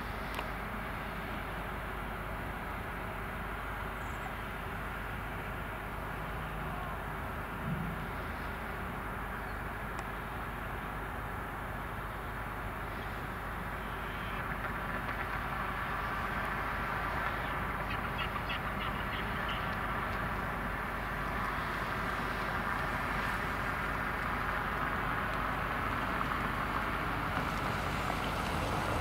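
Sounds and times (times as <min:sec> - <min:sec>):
ferry engines droning: 0:00.0 - 0:29.0
gull calls: 0:17.4 - 0:19.8.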